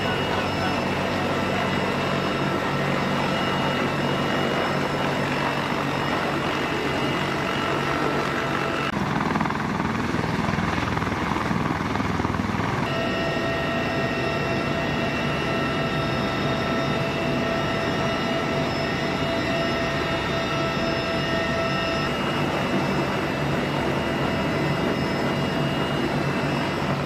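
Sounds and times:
helicopter rotor noise: 0.0s - 27.0s
turbine whine: 0.0s - 27.0s.

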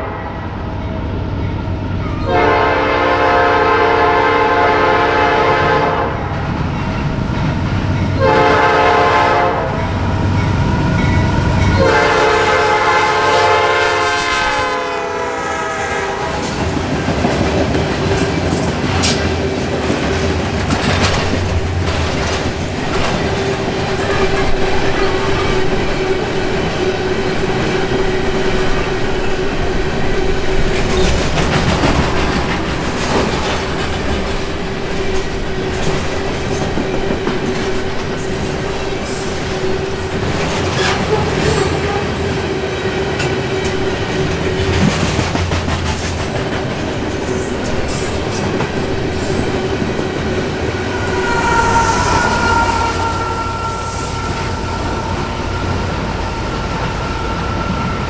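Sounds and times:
freight train wheels rumbling: 0.0s - 58.0s
locomotive squealing tones: 49.0s - 58.0s
constant high tone: 50.7s - 58.0s.

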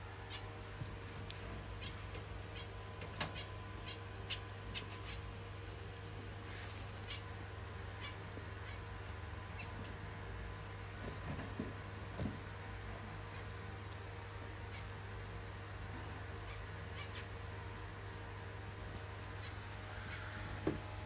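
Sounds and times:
steady low hum: 0.0s - 21.0s
finches chirping: 0.2s - 0.6s, 1.7s - 5.6s, 6.8s - 8.9s, 16.1s - 17.5s, 19.0s - 20.5s.

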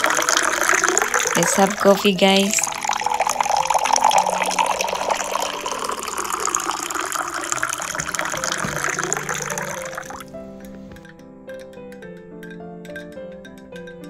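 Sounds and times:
water pouring into container: 0.0s - 11.1s
faint background music: 0.0s - 14.0s.

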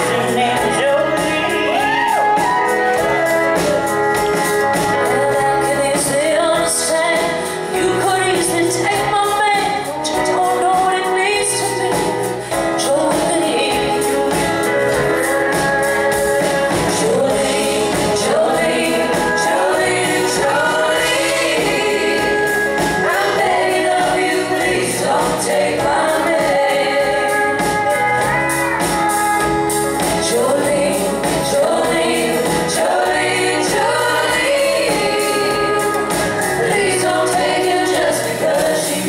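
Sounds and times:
guitars: 0.0s - 39.0s
women singing in harmony: 5.0s - 14.4s, 16.7s - 28.0s, 30.0s - 39.0s.

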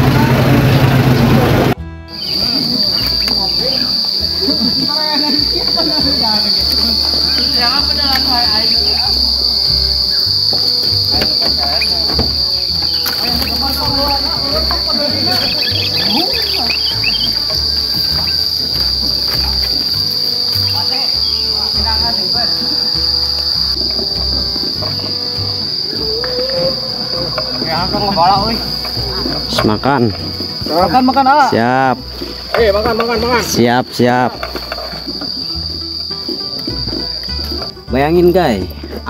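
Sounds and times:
high-pitched insect drone: 1.9s - 39.0s
bird chirping calls: 2.1s - 30.0s.

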